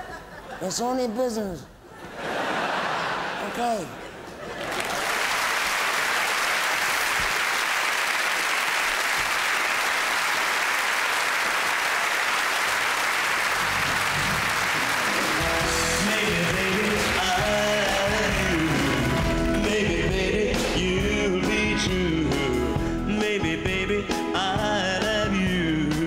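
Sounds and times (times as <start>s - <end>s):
audience applauding: 4.5s - 19.9s
live band playing: 13.6s - 26.0s.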